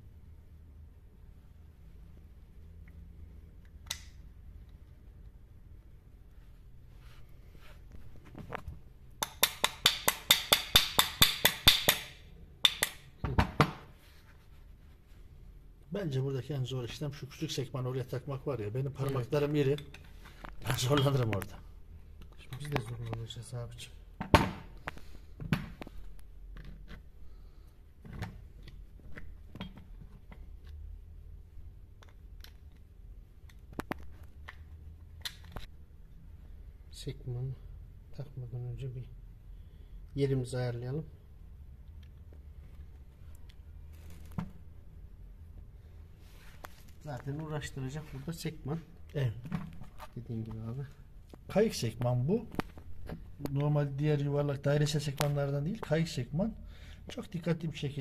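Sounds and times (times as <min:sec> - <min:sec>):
small hammer tapping metal: 0:09.2 - 0:13.0
sharp metal clicks: 0:09.2 - 0:13.1.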